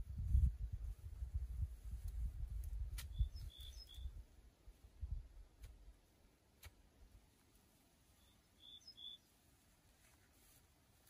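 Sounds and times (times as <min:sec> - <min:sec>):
high bird chirps: 0:03.1 - 0:04.2, 0:08.2 - 0:09.3.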